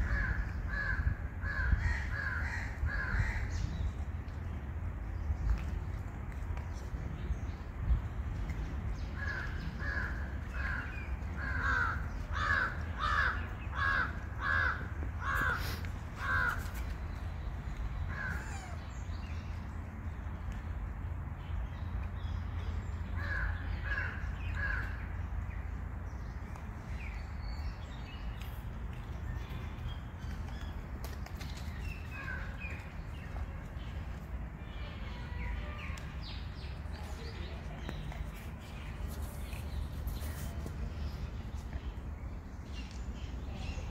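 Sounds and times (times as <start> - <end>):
crow cawing: 11.4 - 15.6.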